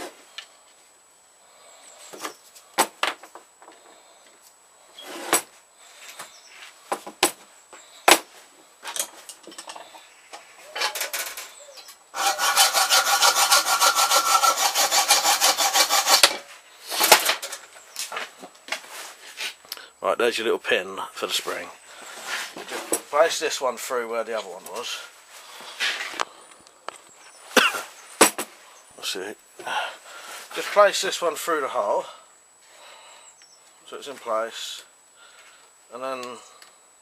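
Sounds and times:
taps and short scrapes: 10.8 - 19.6
hacksaw sawing metal: 12.2 - 17.5.

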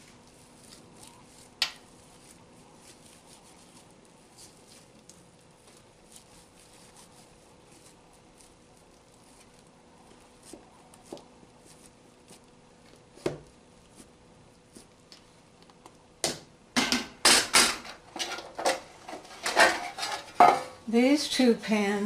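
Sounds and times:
metal loaf pans clattering: 16.8 - 20.8.

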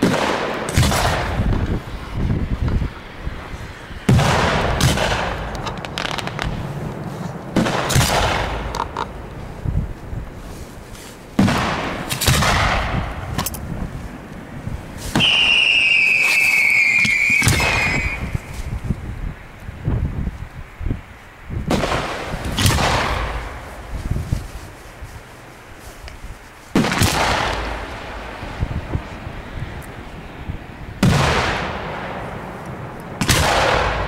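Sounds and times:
firework shells bursting: 4.0 - 9.5, 15.0 - 18.7
whistling firework: 15.0 - 18.8.

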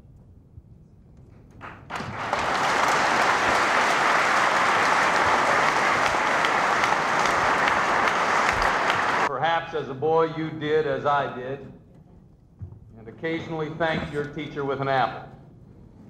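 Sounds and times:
audience applause: 1.6 - 9.3.

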